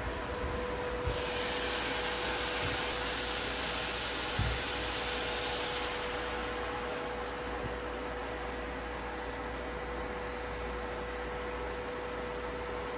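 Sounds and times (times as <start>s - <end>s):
steady hum: 0.0s - 12.9s
meat sizzling in a pot: 1.1s - 7.8s.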